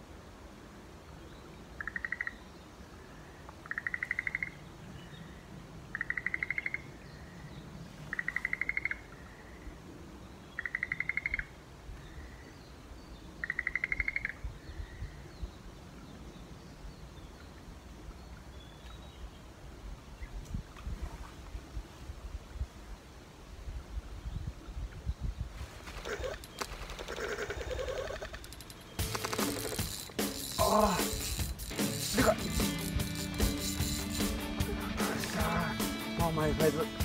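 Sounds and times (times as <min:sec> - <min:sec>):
animal trilling call: 0:26.0 - 0:35.9.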